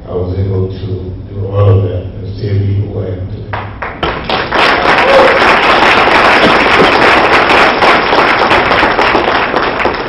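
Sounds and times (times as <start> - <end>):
audience applauding: 3.8 - 10.0.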